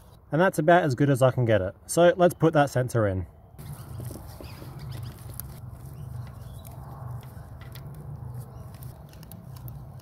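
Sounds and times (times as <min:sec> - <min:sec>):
faint metal clicks and scrapes: 0:04.9 - 0:10.0.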